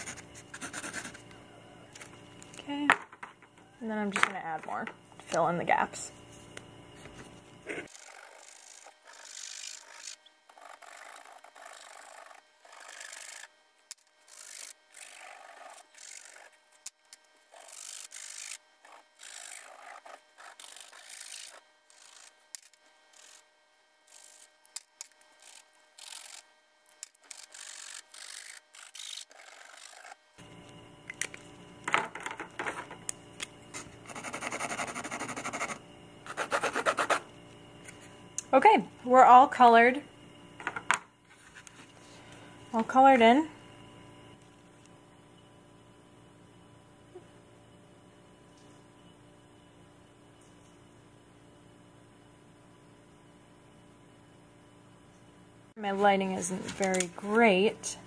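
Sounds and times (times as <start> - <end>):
marker scratching on canvas: 0.0 - 1.2, 33.7 - 37.3.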